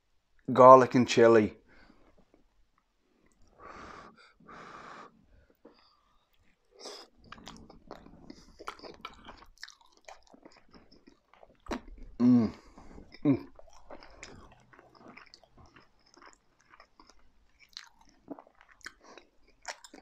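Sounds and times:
wet chewing: 0:05.5 - 0:20.0.

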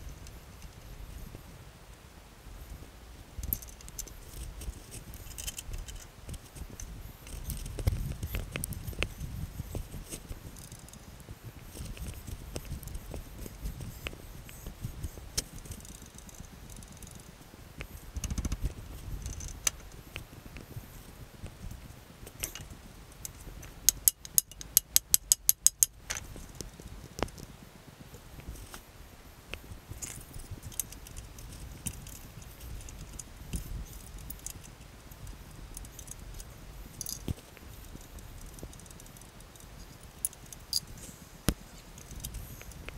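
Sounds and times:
metallic clicks and rattles: 0:03.4 - 0:09.1, 0:22.3 - 0:27.5, 0:30.0 - 0:40.9.

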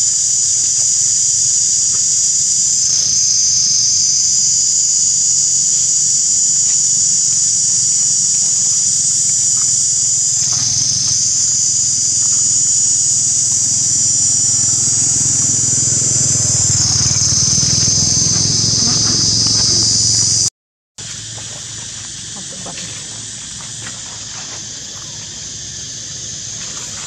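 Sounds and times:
insects droning: 0:00.0 - 0:27.0
low rumble: 0:07.0 - 0:20.4.

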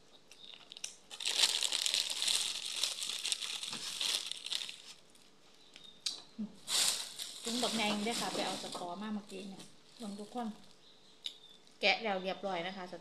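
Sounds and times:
plastic bag crinkling: 0:00.3 - 0:05.4, 0:06.6 - 0:10.8.

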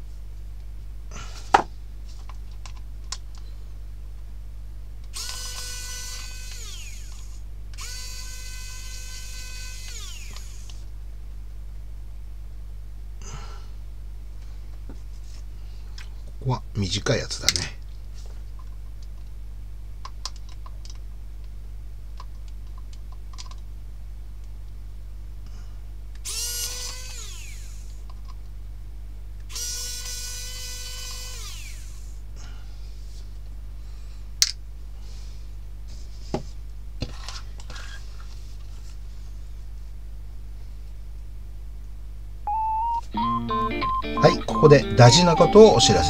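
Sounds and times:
electric screwdriver whirring: 0:05.1 - 0:10.8, 0:26.2 - 0:28.0, 0:29.5 - 0:32.2.

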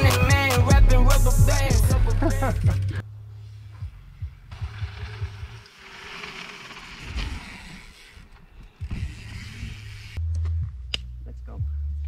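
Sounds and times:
background music bass: 0:00.0 - 0:05.7, 0:08.8 - 0:12.0
bike tyres and air rushing: 0:02.9 - 0:10.2.

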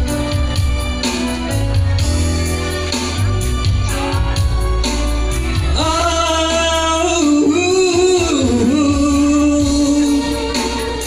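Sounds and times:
electronic keyboard accompaniment: 0:00.0 - 0:11.0
steady bass line: 0:00.0 - 0:11.0
man singing long held notes: 0:05.6 - 0:10.9.

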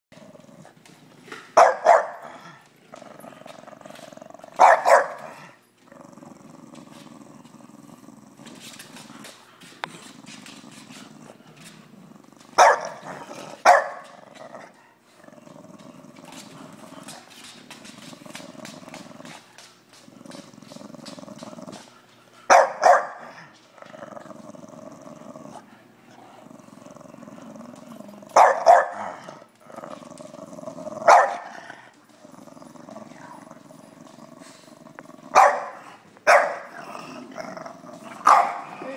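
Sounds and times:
dog growling: 0:00.1 - 0:22.5, 0:23.1 - 0:38.9
dog barking: 0:01.6 - 0:02.2, 0:04.6 - 0:05.3, 0:12.6 - 0:13.0, 0:13.7 - 0:14.0, 0:22.5 - 0:23.3, 0:28.4 - 0:29.0, 0:31.1 - 0:31.5, 0:35.4 - 0:36.7, 0:38.2 - 0:38.7.

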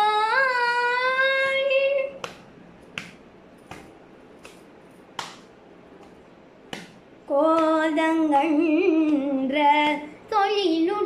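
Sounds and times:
hand claps on lap: 0:02.2 - 0:07.0.

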